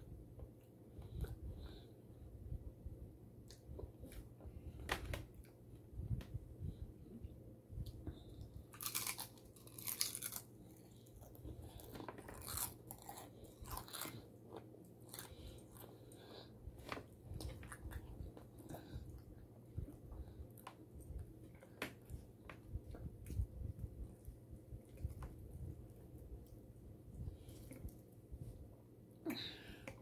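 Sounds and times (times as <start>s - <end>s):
crunchy food chewing: 8.4s - 23.4s.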